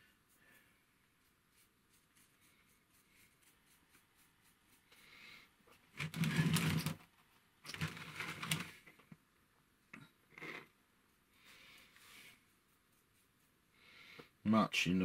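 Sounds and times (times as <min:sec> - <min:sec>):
short brush strokes: 0:00.0 - 0:06.7, 0:11.1 - 0:13.7
stiff paintbrush scrubbing: 0:00.0 - 0:07.0, 0:11.1 - 0:13.8.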